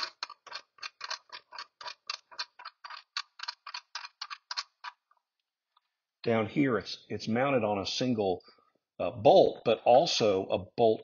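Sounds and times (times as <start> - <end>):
rapid ratchet clicking: 0.0 - 4.9.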